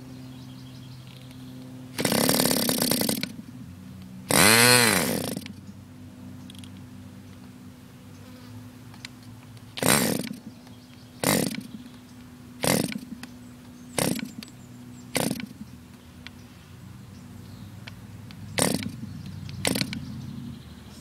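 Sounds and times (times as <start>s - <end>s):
model engine short firing bursts: 1.9s - 3.4s, 4.3s - 5.6s, 9.7s - 10.5s, 11.2s - 11.8s, 12.6s - 13.2s, 13.9s - 14.5s, 15.1s - 15.7s, 18.5s - 20.1s.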